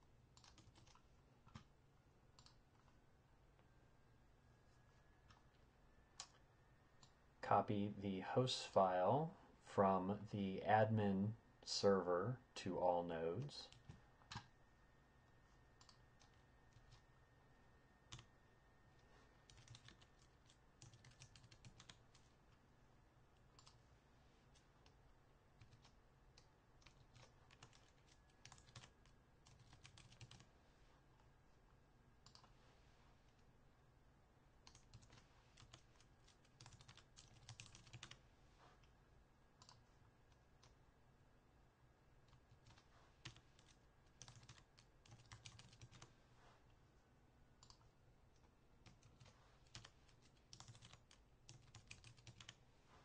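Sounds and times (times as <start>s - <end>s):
keyboard typing: 0.3s - 1.7s, 2.3s - 2.9s, 6.2s - 7.2s, 13.6s - 14.5s, 15.7s - 17.1s, 18.1s - 18.3s, 18.9s - 22.3s, 23.4s - 23.8s, 25.6s - 30.5s, 32.2s - 32.5s, 34.6s - 38.2s, 39.6s - 40.8s, 42.2s - 46.1s, 47.6s - 52.6s.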